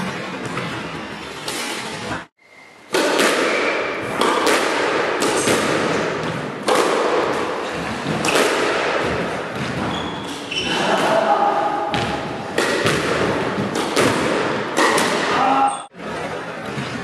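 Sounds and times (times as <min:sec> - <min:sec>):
squash ball knocks echoing: 0:02.9 - 0:15.5.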